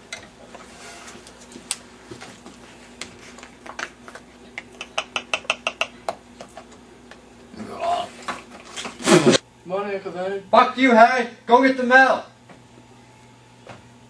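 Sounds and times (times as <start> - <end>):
small objects clicking and tapping: 3.4 - 6.8.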